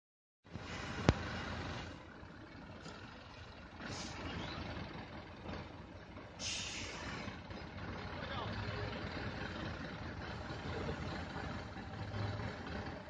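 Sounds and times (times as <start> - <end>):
truck diesel engine running: 0.5 - 13.0
air brake hiss: 6.4 - 7.3.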